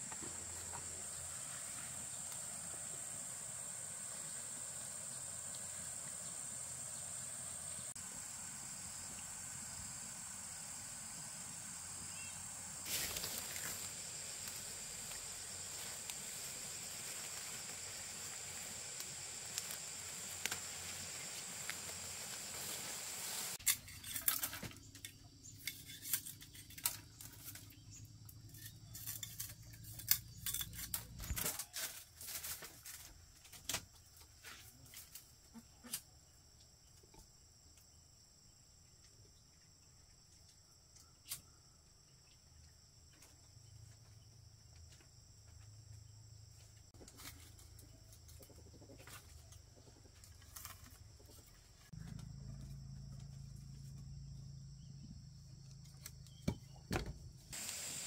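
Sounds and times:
high insect chirring: 0:00.0 - 0:23.6.

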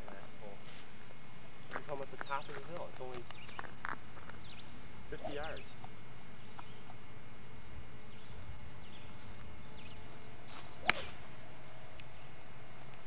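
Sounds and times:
golf club swishing: 0:10.2 - 0:11.4
golf club striking ball: 0:10.6 - 0:11.3.

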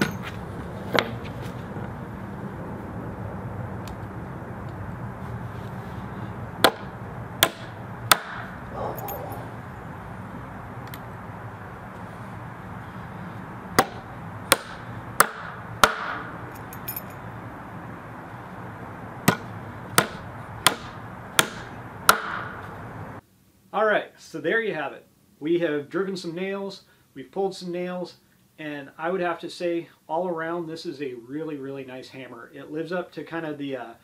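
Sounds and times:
steady low hum: 0:00.0 - 0:23.2
hammer driving nail into wood: 0:06.6 - 0:08.5, 0:13.8 - 0:16.3, 0:19.2 - 0:22.6.

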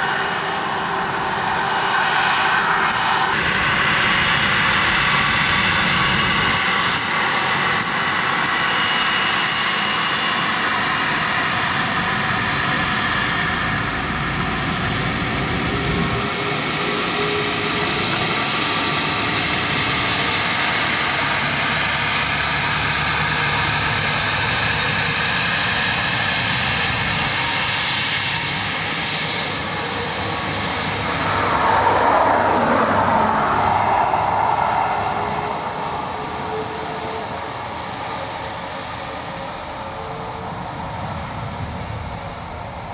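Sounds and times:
jet engine whine and rumble: 0:00.0 - 0:42.9.

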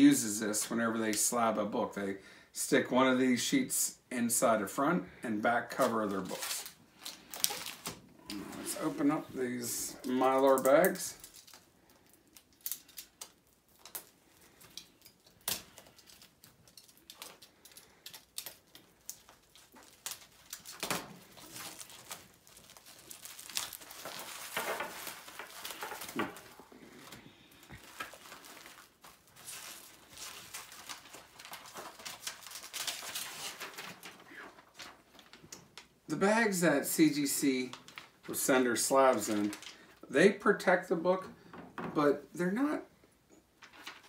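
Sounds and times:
plastic bags crinkling: 0:05.7 - 0:35.9, 0:37.6 - 0:40.0, 0:43.6 - 0:44.0.

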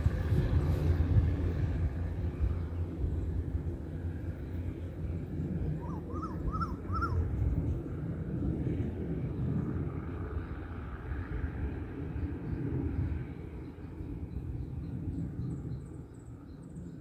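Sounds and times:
steady low rumble: 0:00.0 - 0:17.0
bird calling: 0:05.8 - 0:07.2.

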